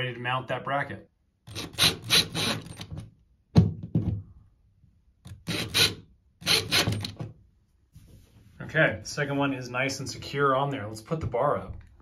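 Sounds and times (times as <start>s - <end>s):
cordless driver running: 5.3s - 7.2s.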